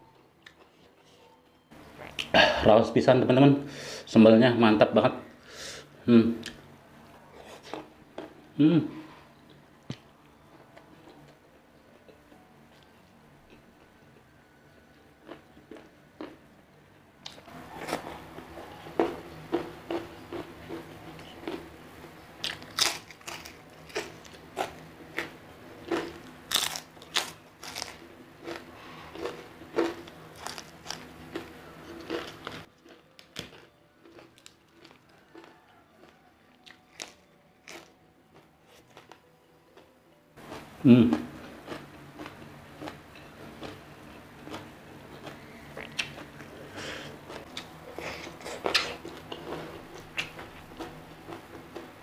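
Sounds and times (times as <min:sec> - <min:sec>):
crunchy food being chewed: 0:15.2 - 0:16.4, 0:17.2 - 0:21.7, 0:22.4 - 0:52.0.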